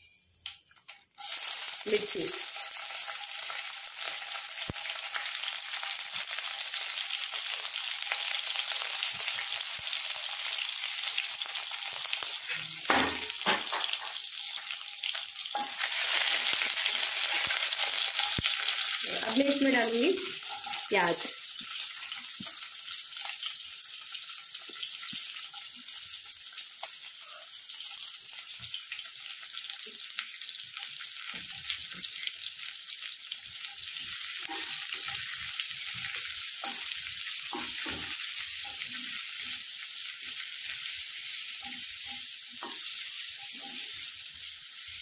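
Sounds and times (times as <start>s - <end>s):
onions sizzling in oil: 0.0s - 45.0s
spatula scraping pan: 15.5s - 22.1s.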